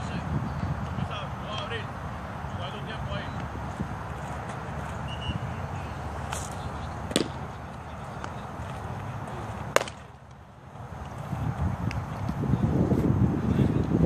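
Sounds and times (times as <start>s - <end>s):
outdoor background noise: 0.0s - 14.0s
baseball smacking into glove: 7.1s - 7.4s, 9.8s - 10.1s.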